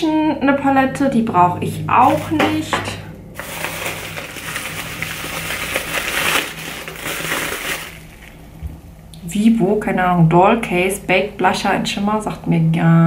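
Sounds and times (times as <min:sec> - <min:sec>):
packaging crinkling and rustling: 0:02.0 - 0:02.5, 0:03.4 - 0:08.5.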